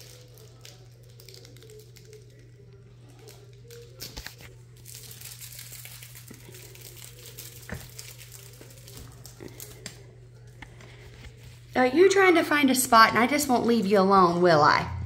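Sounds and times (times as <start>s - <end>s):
dog toy crinkling: 0.0s - 11.8s.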